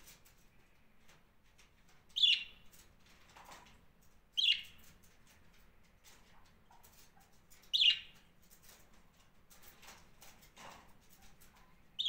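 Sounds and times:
budgerigar chirps: 2.2 - 2.5, 7.8 - 8.1.

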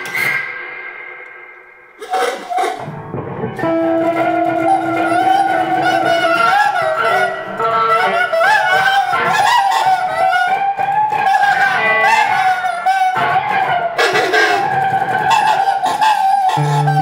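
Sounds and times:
electric guitar improvising: 0.0 - 17.0
horn playing: 3.6 - 10.4, 16.5 - 17.0.

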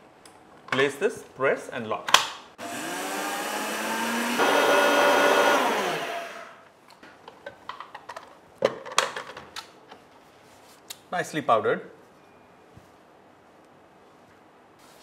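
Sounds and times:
blender motor grinding: 2.6 - 6.6.

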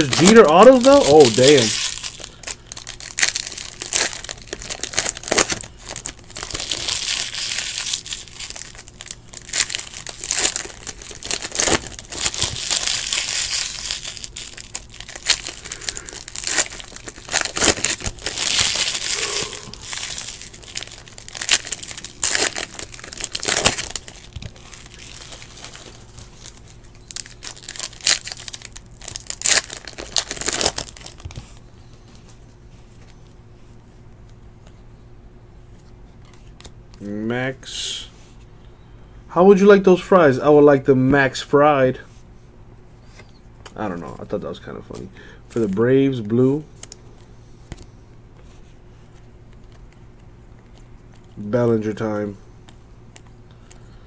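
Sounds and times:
foil wrappers crinkling: 0.0 - 33.3.

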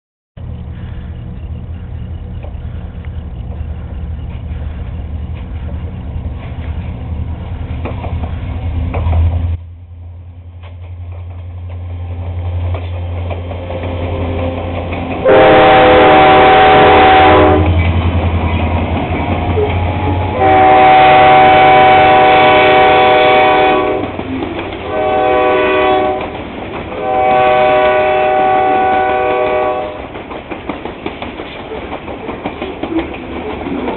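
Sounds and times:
diesel locomotive engines droning: 0.4 - 33.9
train air horn blasts: 15.2 - 17.8, 19.6 - 24.2, 24.8 - 26.4, 27.0 - 30.1.

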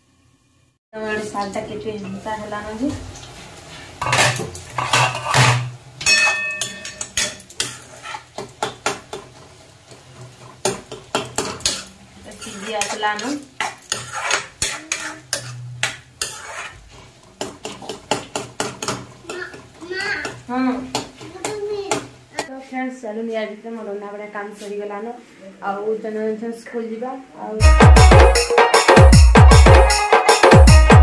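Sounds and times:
metal spoon scraping a pan: 3.8 - 22.0
spoon clinking against pan: 6.0 - 7.8.

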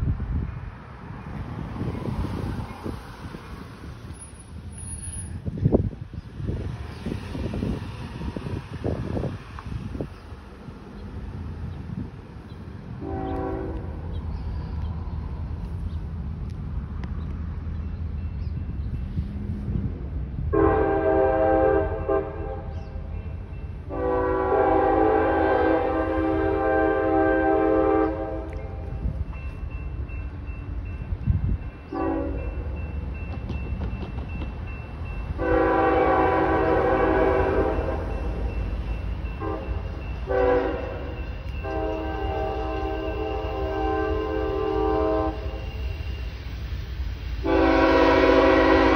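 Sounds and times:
low rumble of train: 0.0 - 48.9
train air horn blast: 13.0 - 13.9, 20.5 - 22.8, 23.9 - 28.8, 31.9 - 32.6, 35.4 - 38.2, 39.4 - 45.6, 47.4 - 48.9.

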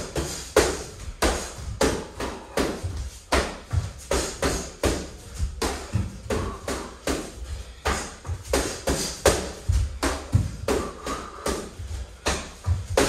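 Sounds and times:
bare feet thudding on wood floor: 7.4 - 13.0.

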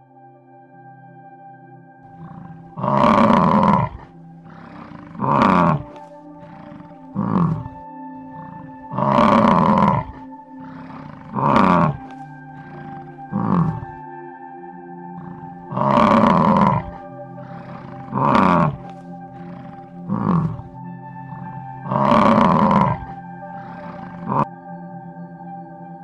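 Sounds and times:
soft ambient music: 0.0 - 26.0
bison bellowing: 2.2 - 14.0, 15.2 - 24.5.

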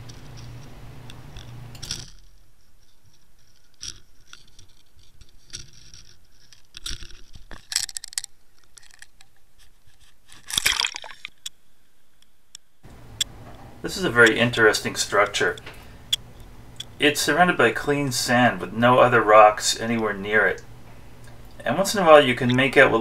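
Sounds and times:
small water sounds: 10.5 - 11.4.

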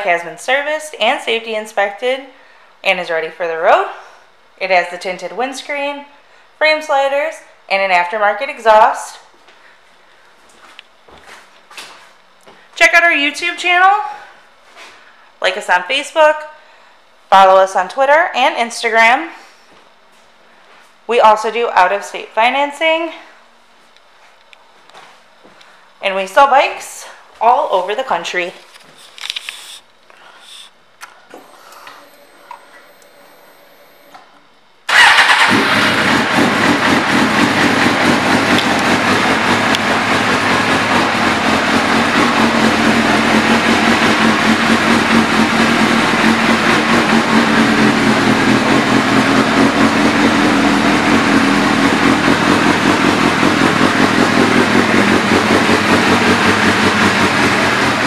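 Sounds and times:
motorcycle engine starting and idling: 34.9 - 58.0.

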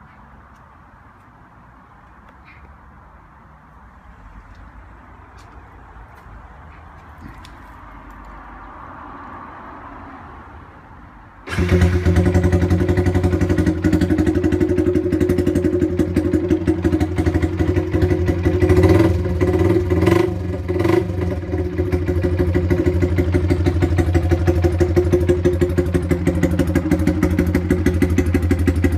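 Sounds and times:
motorcycle engine idling: 11.5 - 28.9.

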